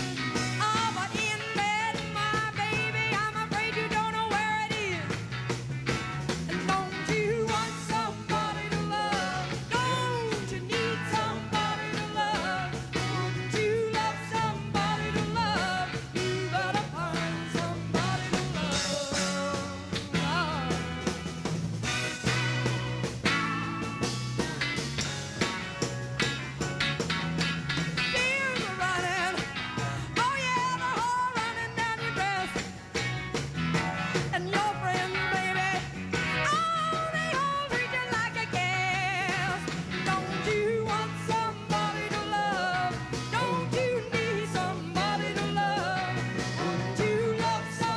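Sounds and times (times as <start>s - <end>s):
bass guitar: 0.0s - 47.9s
electric guitar: 0.0s - 47.9s
psychedelic rock band playing: 0.0s - 47.9s
steady drum beat: 0.0s - 47.9s
person singing: 6.6s - 21.1s, 36.5s - 47.9s
lead melody with bending notes: 12.6s - 29.8s.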